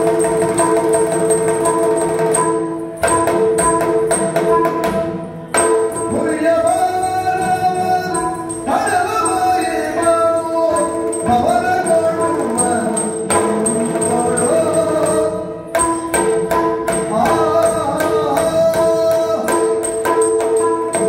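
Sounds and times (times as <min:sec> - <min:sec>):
person singing: 0:05.9 - 0:15.7, 0:17.0 - 0:20.0.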